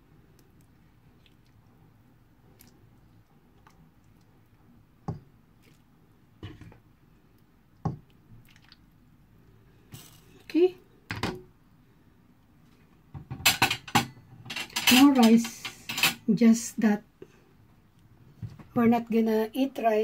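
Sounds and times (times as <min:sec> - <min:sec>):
soup scooping and pouring: 0:00.3 - 0:10.4.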